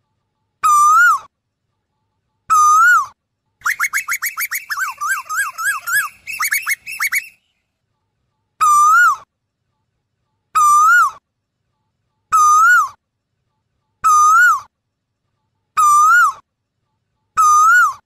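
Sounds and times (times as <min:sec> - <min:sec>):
bird whistled calls: 0:02.5 - 0:07.5, 0:17.4 - 0:18.0.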